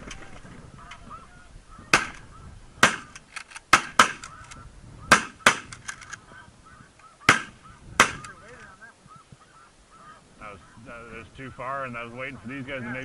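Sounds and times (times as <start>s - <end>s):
geese calling: 0.0s - 13.0s
shotgun shots: 1.9s - 2.2s, 2.8s - 4.4s, 5.1s - 5.8s, 7.3s - 8.3s.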